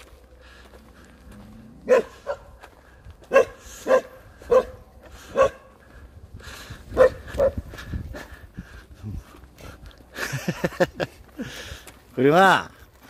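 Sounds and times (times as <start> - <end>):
dog barking: 1.8 - 2.5, 3.3 - 5.7, 7.0 - 7.6.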